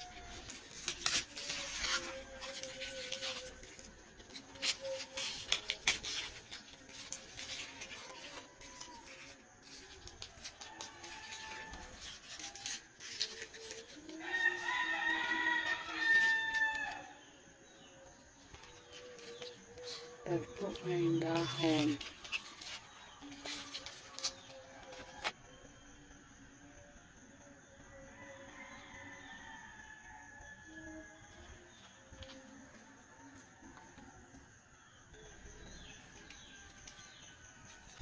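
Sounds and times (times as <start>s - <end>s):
leaves rustling and crackling: 0.0s - 14.8s
rooster crowing: 10.4s - 17.3s, 27.8s - 34.4s.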